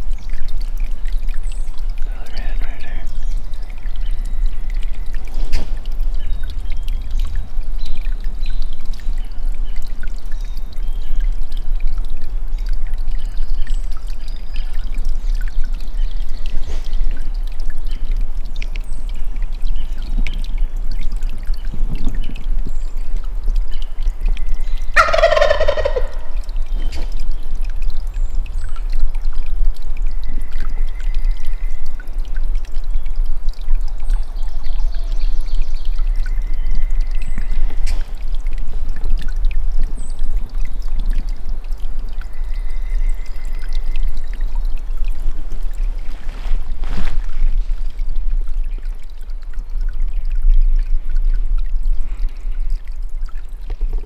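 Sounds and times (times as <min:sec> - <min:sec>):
turkey gobbling: 0:25.0 - 0:26.4.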